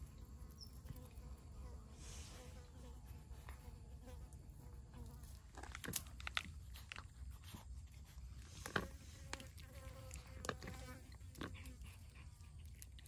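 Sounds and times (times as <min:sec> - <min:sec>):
cat chewing raw fish: 0:05.8 - 0:13.0.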